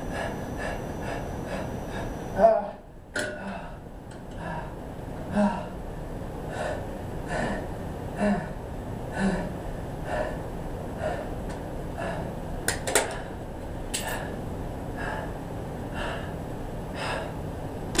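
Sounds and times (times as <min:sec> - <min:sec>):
man breathing heavily: 0:00.0 - 0:02.4, 0:03.3 - 0:12.6, 0:13.2 - 0:18.0
sharp clicks and knocks: 0:12.7 - 0:13.2.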